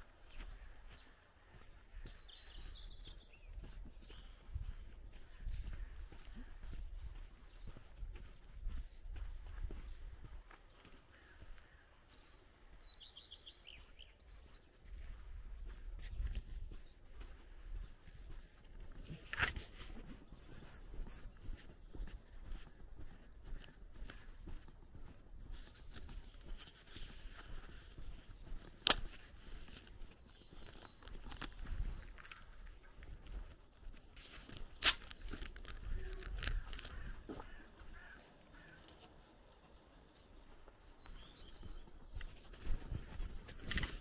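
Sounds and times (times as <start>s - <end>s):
footsteps on dirt track: 0.0s - 44.0s
faint bird chirps: 0.2s - 8.4s
sharp clicks: 28.8s - 29.2s.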